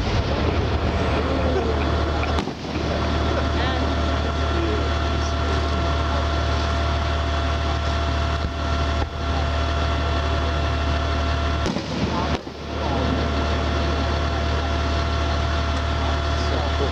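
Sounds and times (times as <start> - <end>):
engine idling drone: 0.0 - 16.9.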